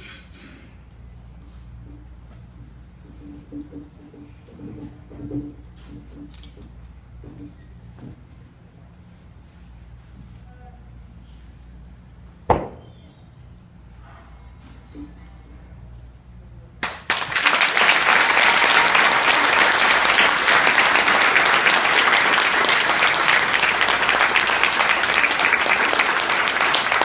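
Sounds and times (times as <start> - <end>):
sharp knock: 12.5 - 12.9
audience applauding: 16.8 - 27.0.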